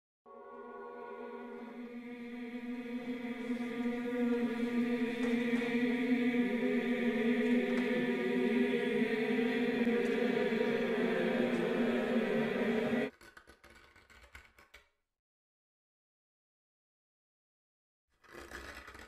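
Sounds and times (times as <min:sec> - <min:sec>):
droning hum of held pitches: 0:00.3 - 0:13.1.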